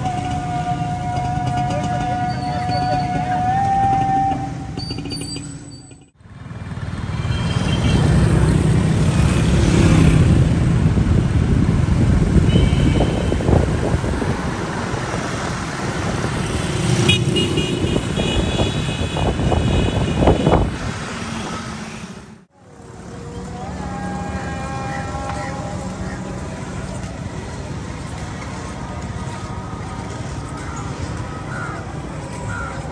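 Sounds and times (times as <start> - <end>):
engine and tyre rumble: 0.0 - 32.9
car horn toots: 12.5 - 13.5, 17.0 - 20.7.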